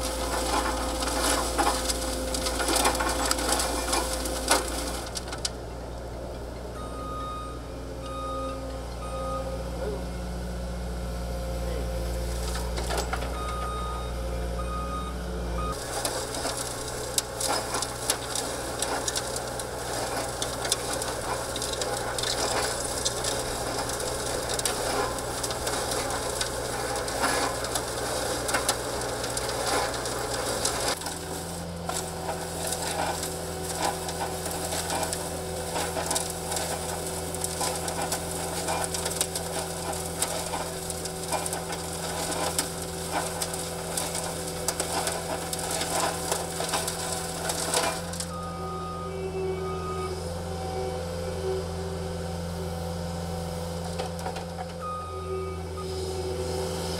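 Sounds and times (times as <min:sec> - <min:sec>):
soil and stones rattling: 0:00.0 - 0:05.6, 0:15.7 - 0:48.4
loader engine running: 0:00.0 - 0:56.9.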